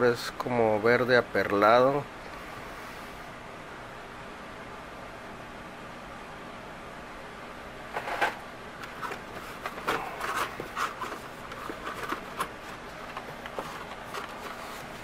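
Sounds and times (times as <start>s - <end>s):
plastic packaging clicks and rustles: 8.1s - 15.0s.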